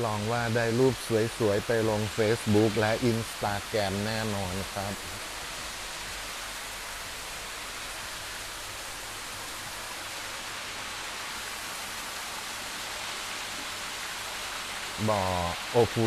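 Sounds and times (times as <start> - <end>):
waterfall splashing into pool: 0.0 - 16.0.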